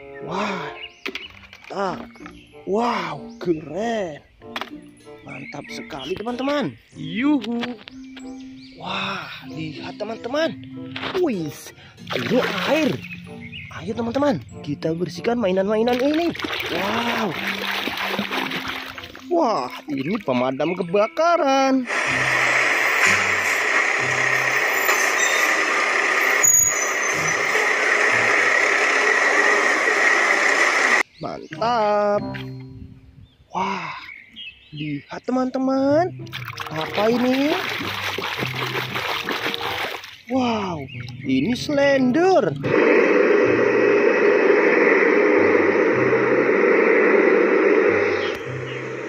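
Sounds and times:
diesel engine drone: 21.8s - 31.1s, 42.4s - 49.0s.

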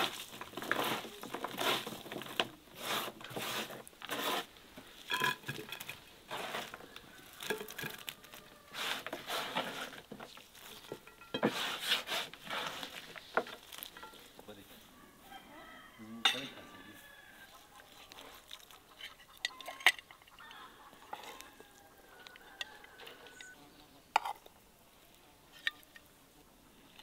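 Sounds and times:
vegetables rustling and crinkling: 0.0s - 14.8s, 17.8s - 19.3s.

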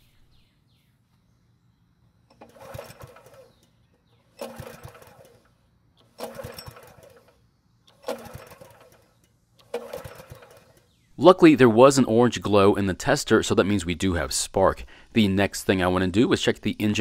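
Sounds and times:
recoil starter rope pulled: 2.2s - 11.0s
engine cranking whir: 2.2s - 11.1s.

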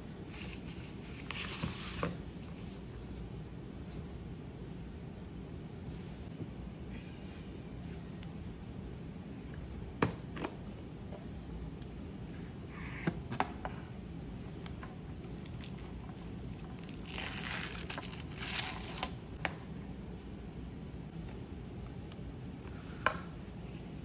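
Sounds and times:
plastic film crinkling: 15.3s - 19.4s.

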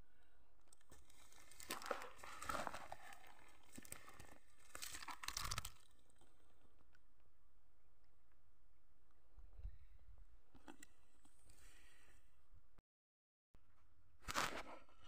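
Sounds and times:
crinkling rustling: 0.7s - 6.3s.

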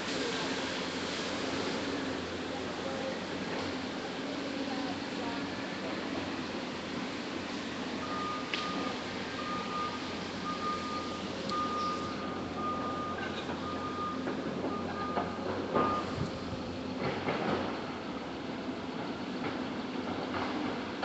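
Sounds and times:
steady background noise: 0.0s - 21.0s
vehicle reversing alarm beeping: 7.8s - 16.8s.

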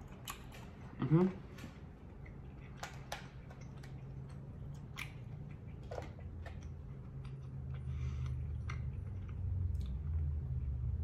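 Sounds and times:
person chewing with mouth clicks: 0.0s - 1.1s, 2.2s - 10.3s
low steady hum: 0.0s - 11.0s
lip smacks: 2.2s - 10.1s.

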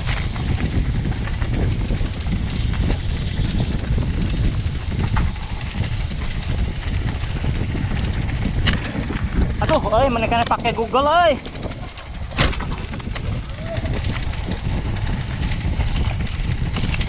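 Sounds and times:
bike frame knocks and clicks: 0.0s - 17.0s
tyres rumbling on dirt trail: 0.0s - 17.0s
wind on microphone: 0.0s - 17.0s.

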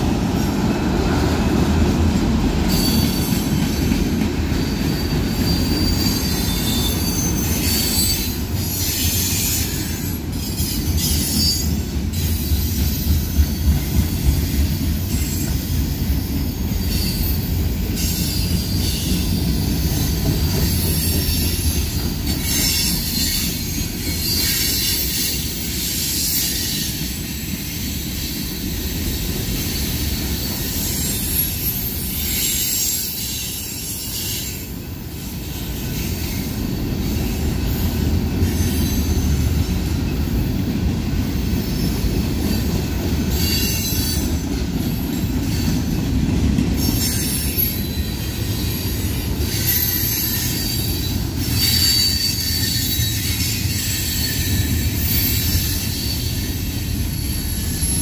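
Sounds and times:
train wheels rumbling on rail: 0.0s - 58.0s
high-pitched wheel squeal: 2.7s - 3.4s, 4.5s - 12.7s, 43.3s - 44.4s, 46.8s - 58.0s.

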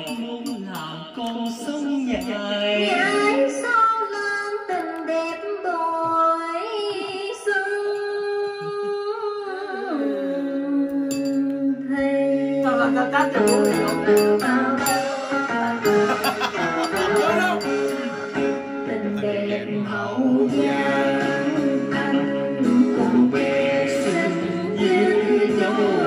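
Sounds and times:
backing music: 0.0s - 3.5s, 12.1s - 26.0s
man singing into microphone: 0.0s - 3.6s, 18.8s - 26.0s.

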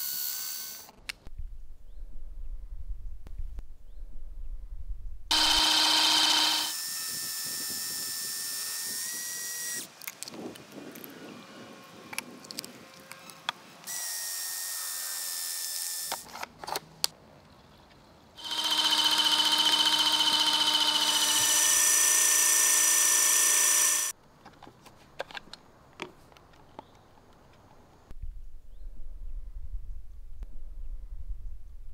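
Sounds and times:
water pistol motor whirring: 5.3s - 9.9s, 18.4s - 24.1s.

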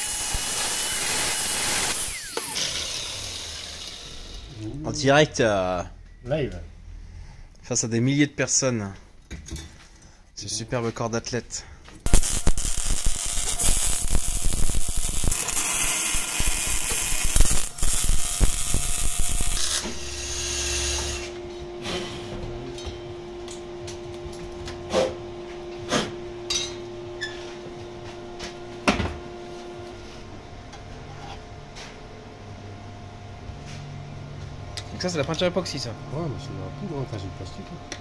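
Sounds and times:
arc welding crackle: 0.0s - 4.5s, 12.0s - 21.3s
steady hum: 11.5s - 38.0s.

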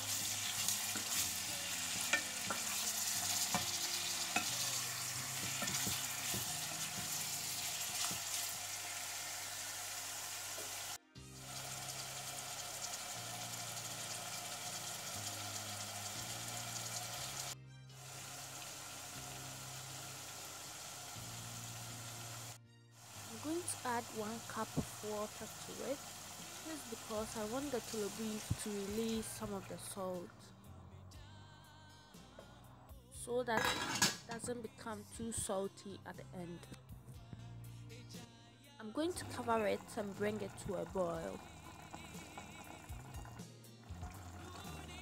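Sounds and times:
meat and onions sizzling in oil: 0.0s - 29.7s
wooden spoon scraping a pot: 0.4s - 8.5s.

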